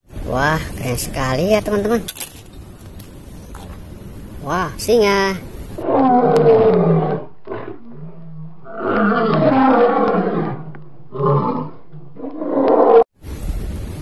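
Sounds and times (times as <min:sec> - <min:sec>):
lion roaring: 0:05.8 - 0:13.1.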